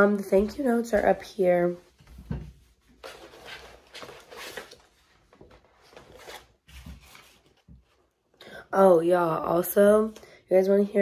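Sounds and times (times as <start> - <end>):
rustling and scraping of objects: 0.2 - 8.2.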